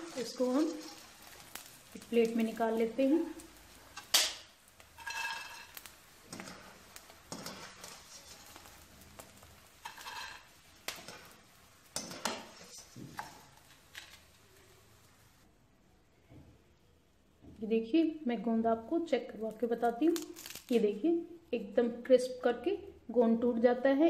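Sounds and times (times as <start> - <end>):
strainer scraping a metal pan: 0.0 - 2.5, 5.0 - 11.4, 12.0 - 13.6.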